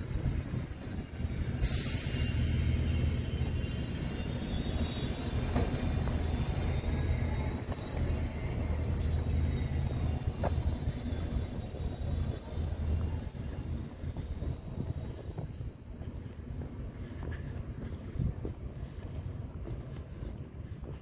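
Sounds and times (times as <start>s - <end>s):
brief rush of hiss: 1.6s - 2.7s.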